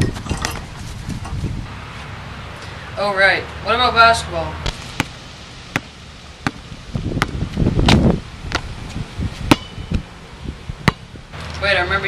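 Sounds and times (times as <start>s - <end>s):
low rumbling noise: 0.0s - 12.0s
basketball bouncing on asphalt: 4.6s - 10.0s, 10.8s - 11.1s.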